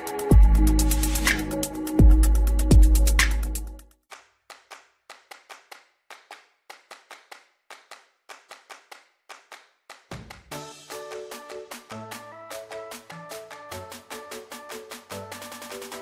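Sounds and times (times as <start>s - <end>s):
melodic music: 0.0s - 3.8s, 10.5s - 16.0s
electronic music: 0.0s - 3.9s, 10.5s - 16.0s
handclap-like clicks: 1.2s - 1.5s, 4.1s - 16.0s.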